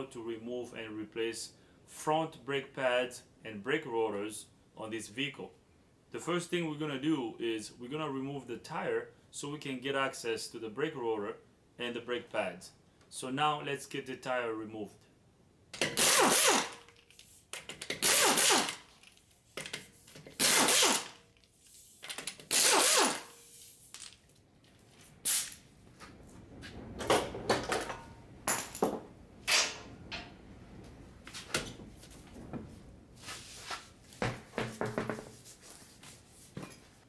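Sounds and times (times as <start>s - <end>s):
impact wrench rattling: 15.8s - 21.2s, 22.0s - 23.3s.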